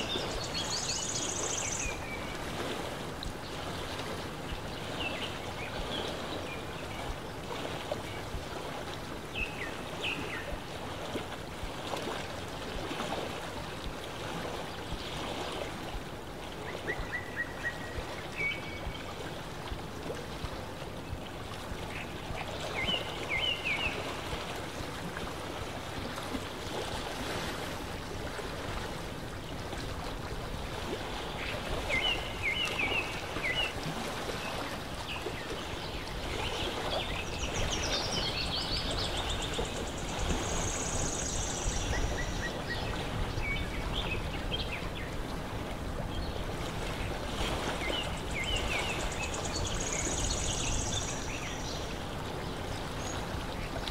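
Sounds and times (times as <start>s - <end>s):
water lapping: 0.0s - 53.9s.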